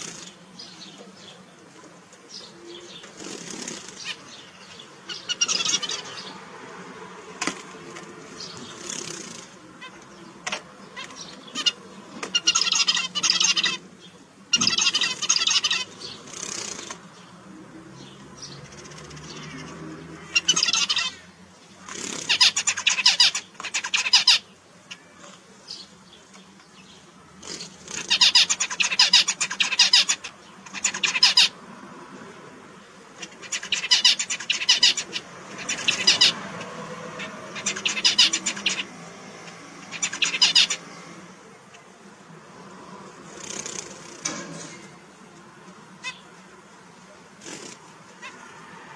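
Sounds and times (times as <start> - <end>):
finches singing: 0.0 - 7.0, 7.8 - 31.6, 32.6 - 42.4, 45.8 - 48.4.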